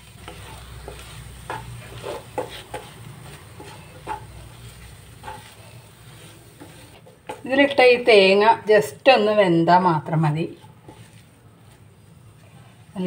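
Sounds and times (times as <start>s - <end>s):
wooden spatula scraping a pan: 0.0s - 8.0s, 10.2s - 13.0s.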